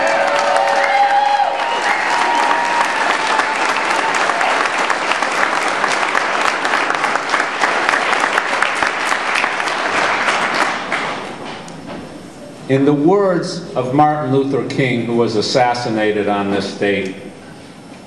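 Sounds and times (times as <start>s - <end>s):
crowd applauding: 0.0s - 11.5s.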